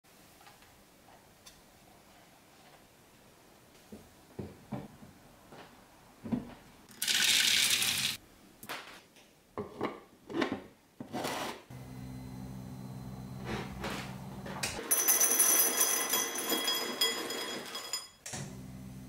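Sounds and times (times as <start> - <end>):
steady low hum: 11.7 - 14.8.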